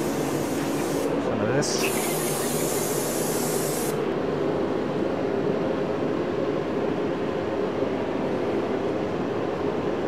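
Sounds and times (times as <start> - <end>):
aerosol spray hissing: 0.0 - 1.1, 1.8 - 4.0.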